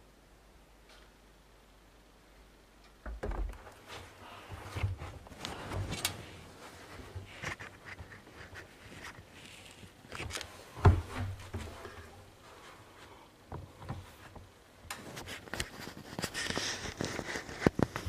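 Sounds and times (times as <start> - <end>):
knocks bumps and rustling: 10.7 - 12.2.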